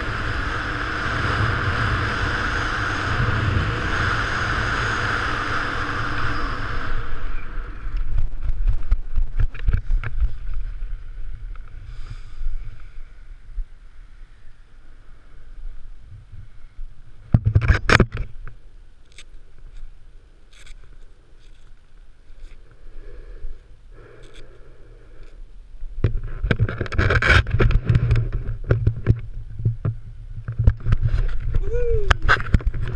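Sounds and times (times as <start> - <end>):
wind rushing over microphone: 0.0 - 18.3, 25.9 - 32.9.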